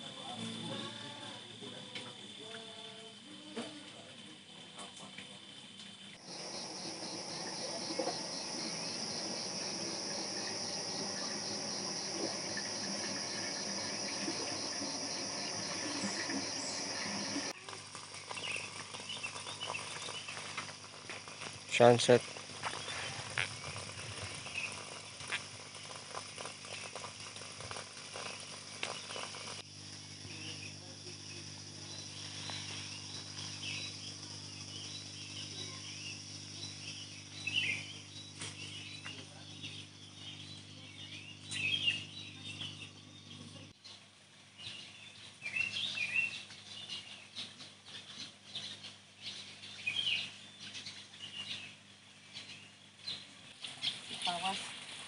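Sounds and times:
steady high hiss: 3.3 - 39.9
low steady hum: 6.2 - 21.6
bird chirps: 6.3 - 17.6, 31.8 - 44.0.

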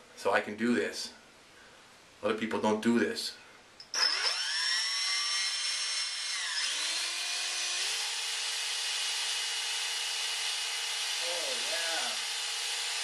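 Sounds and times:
cordless drill whining: 3.8 - 13.0.

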